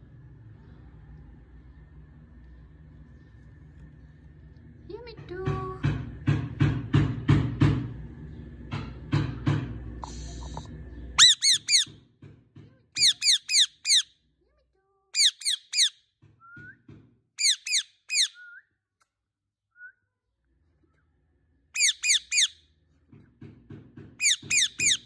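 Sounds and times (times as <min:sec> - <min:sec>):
parakeet screeching: 0:11.2 - 0:11.9, 0:13.0 - 0:14.1, 0:15.2 - 0:16.0, 0:17.4 - 0:18.4, 0:21.8 - 0:22.6, 0:24.2 - 0:25.0.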